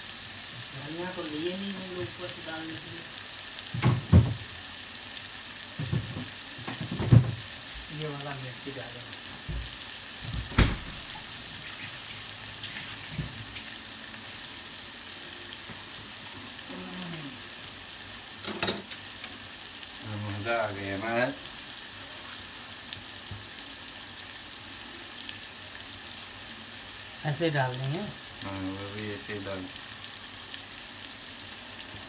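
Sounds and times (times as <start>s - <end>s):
food sizzling in hot oil: 0.0s - 32.0s.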